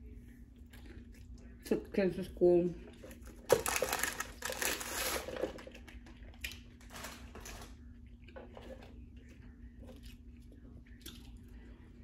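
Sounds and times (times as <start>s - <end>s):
paper wrapper crinkling: 3.5s - 5.6s.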